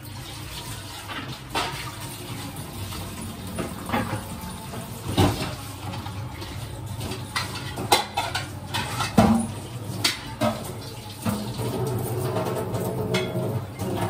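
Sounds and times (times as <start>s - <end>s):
dishes and pans clinking: 1.0s - 14.0s.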